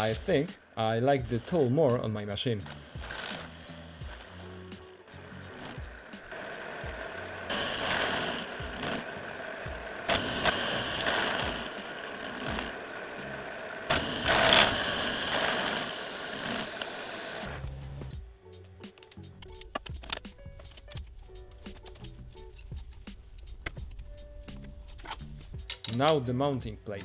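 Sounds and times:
milling machine cutting whine: 0:02.6 - 0:17.5.

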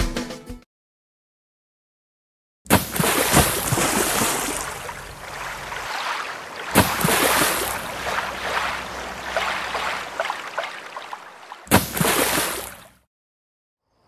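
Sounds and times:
rushing splashing water: 0:02.7 - 0:13.0.

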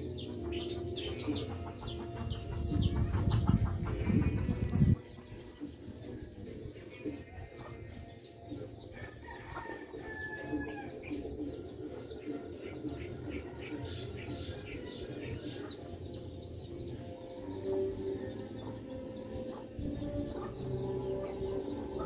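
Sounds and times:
chickens clucking: 0:00.0 - 0:22.0.

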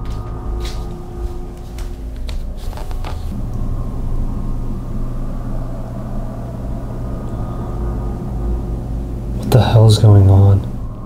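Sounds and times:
footsteps on wooden floor: 0:00.0 - 0:03.4
low rumble: 0:00.0 - 0:11.0
steady low hum: 0:00.0 - 0:11.0.

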